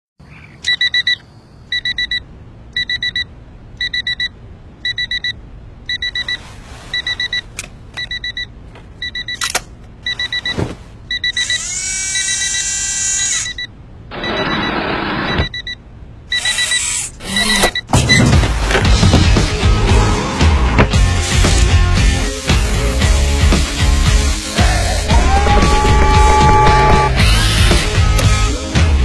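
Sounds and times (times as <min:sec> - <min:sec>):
digital alarm clock beeping: 0:00.7 - 0:02.2, 0:02.8 - 0:09.4, 0:10.0 - 0:18.2
rushing noise: 0:24.5 - 0:28.1.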